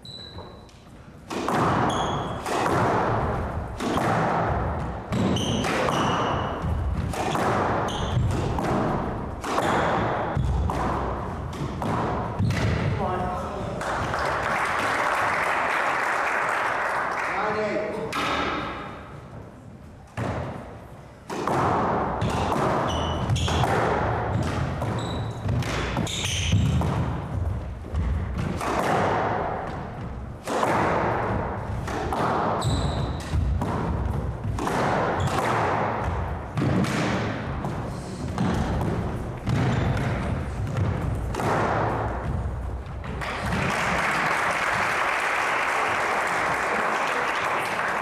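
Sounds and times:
squash ball hits: 1.2 - 14.6, 18.1 - 19.2, 20.1 - 44.0
shoes squeaking on hardwood: 24.8 - 26.8, 32.6 - 33.4.

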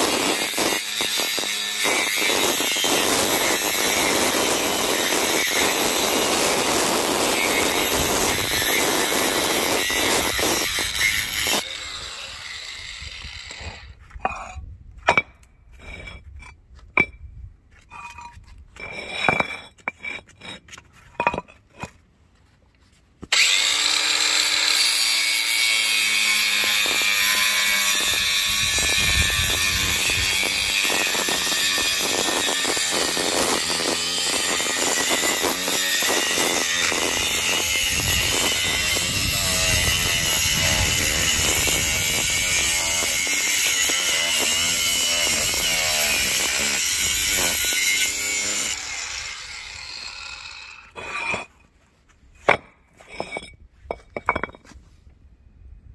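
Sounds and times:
angle grinder cutting stone: 0.0 - 14.0, 23.3 - 51.5.

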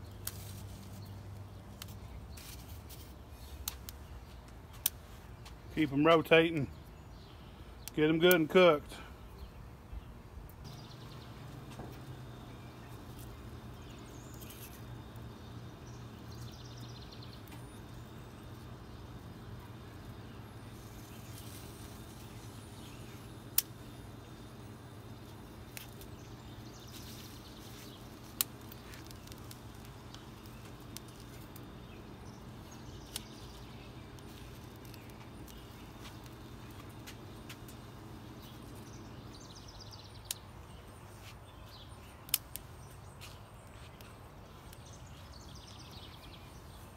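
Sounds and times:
peppers clicking on grill grates: 0.0 - 5.1, 10.7 - 39.0, 42.2 - 44.9
steady low hum: 0.0 - 46.9.

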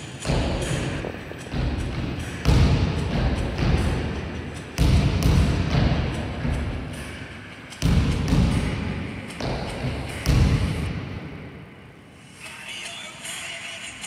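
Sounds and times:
basketball thudding on gym floor: 1.5 - 4.1, 4.8 - 6.6, 7.8 - 10.9.

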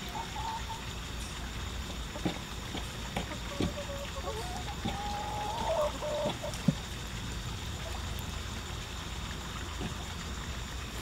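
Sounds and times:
chickens clucking: 0.0 - 6.9.

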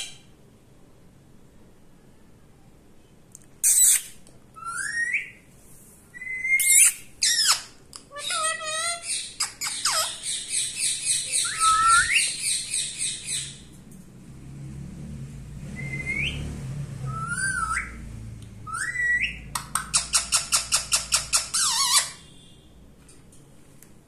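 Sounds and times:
parakeet squawking: 3.6 - 5.3, 6.3 - 13.6, 17.1 - 18.0, 18.7 - 22.3
parakeet whistling: 3.6 - 5.4, 6.2 - 7.7, 8.3 - 13.6, 15.8 - 16.4, 17.0 - 18.0, 18.6 - 22.2.

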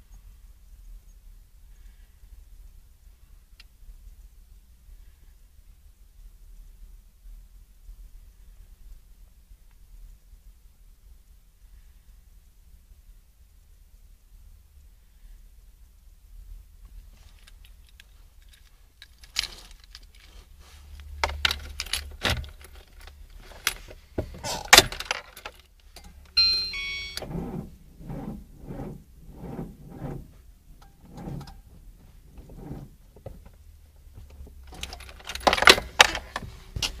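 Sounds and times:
car keys jangling: 17.3 - 27.6, 34.6 - 37.0.

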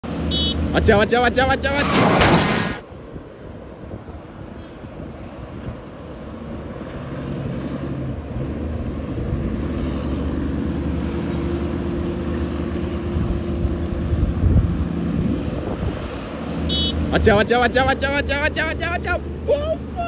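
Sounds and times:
diesel truck engine drone: 0.0 - 20.0
traffic: 0.0 - 20.0
wind on microphone: 13.1 - 16.2.

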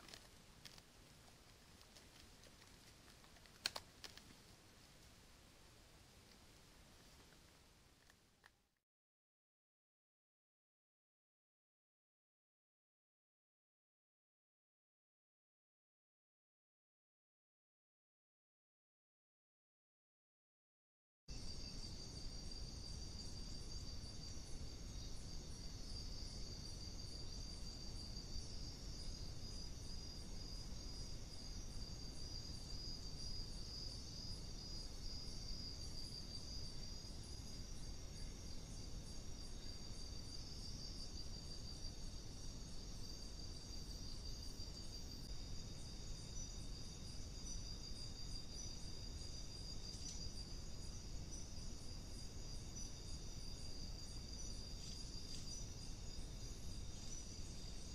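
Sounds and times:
crickets trilling: 0.0 - 4.4, 21.3 - 57.9
low background noise: 0.0 - 8.8, 21.3 - 57.9.

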